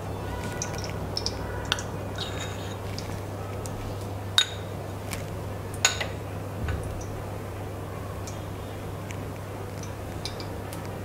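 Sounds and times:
bowl and spoon clinking: 4.4s - 4.7s.

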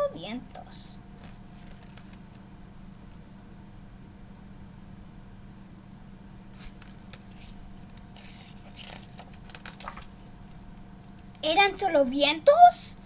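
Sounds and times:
faint room hum: 0.0s - 13.0s
paper pages rustling: 1.2s - 2.4s, 6.6s - 10.6s.

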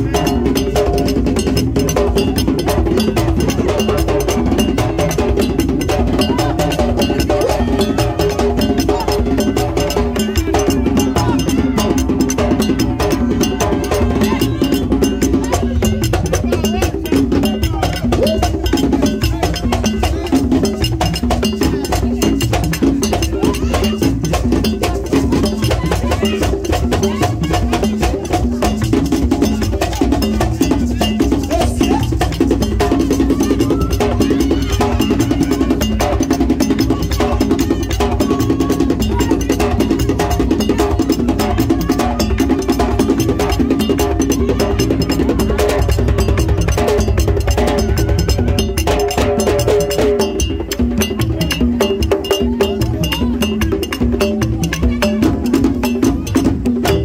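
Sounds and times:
drums: 0.0s - 57.0s
voices singing: 0.0s - 57.0s
struck metal bell: 0.1s - 57.0s.

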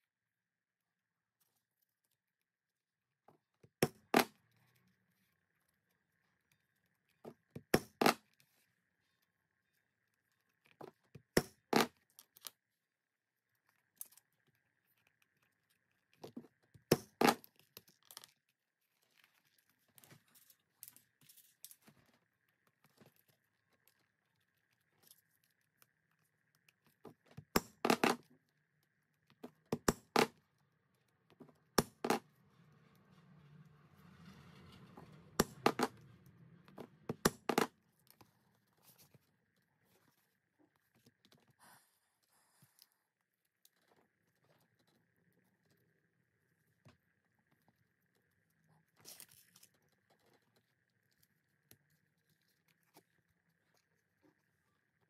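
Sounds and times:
leatherworking tools clicking and tapping: 27.4s - 28.2s, 29.7s - 30.3s, 37.1s - 37.7s.

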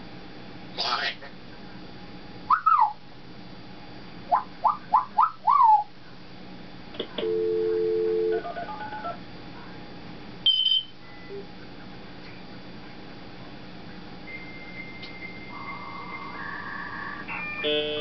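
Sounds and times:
electronic beep: 10.5s - 11.4s
soft tones: 14.3s - 18.0s.

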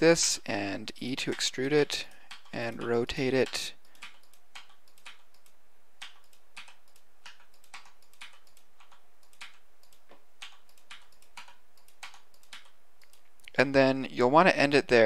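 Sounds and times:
computer keyboard clicks: 2.2s - 13.2s.

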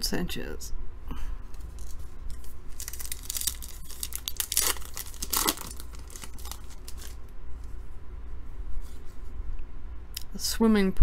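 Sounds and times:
wrapper tearing and crumpling: 1.6s - 7.2s.

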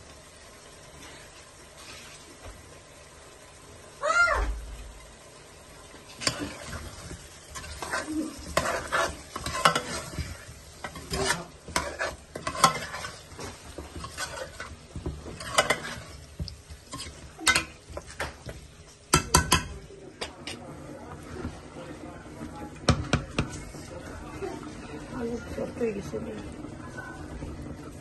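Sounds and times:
food sizzling: 0.0s - 28.0s
spoon scraping a pan: 6.1s - 20.6s.

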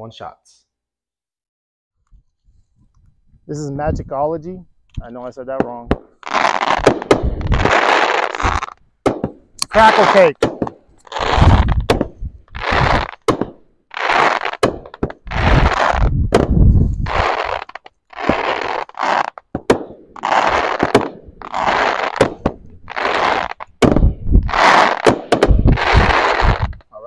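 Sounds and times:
firework shells crackling: 5.5s - 26.9s
sharp firework launch cracks: 5.6s - 26.8s.

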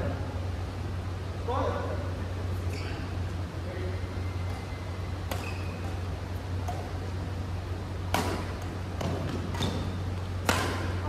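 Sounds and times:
rackets hitting shuttlecock: 4.4s - 11.0s.

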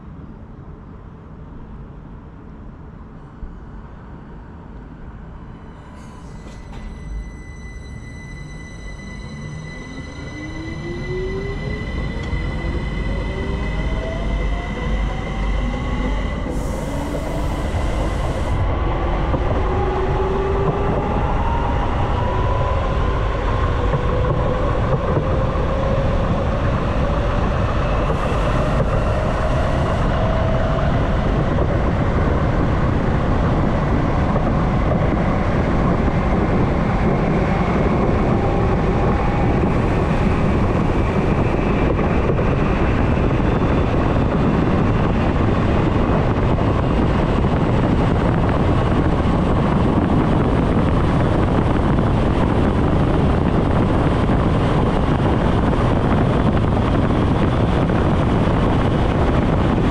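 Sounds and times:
wheels rumbling on rail: 0.0s - 59.9s
electric train motor whine: 6.3s - 32.0s.

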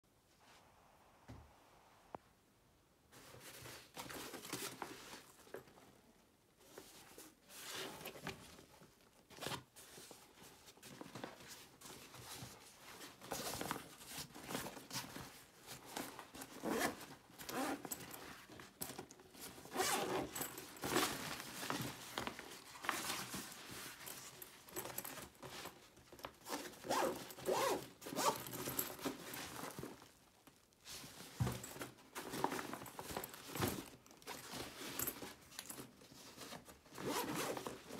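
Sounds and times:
bag zippers opening and closing: 16.5s - 18.0s, 19.6s - 20.6s, 26.5s - 28.6s, 37.0s - 37.7s.

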